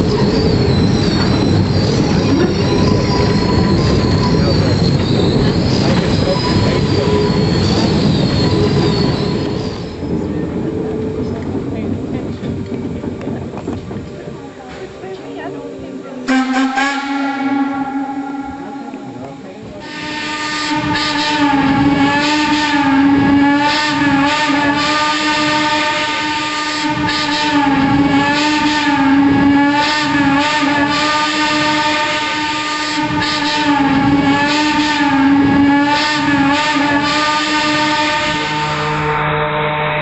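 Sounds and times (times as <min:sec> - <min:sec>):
steam locomotive whistle: 0:00.0 - 0:10.1, 0:16.2 - 0:19.2, 0:19.8 - 0:40.0.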